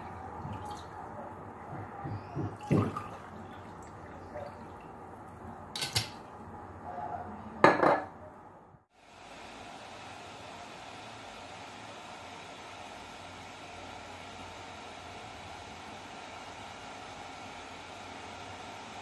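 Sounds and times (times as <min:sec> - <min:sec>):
glassware clinking on counter: 0:07.6 - 0:08.2.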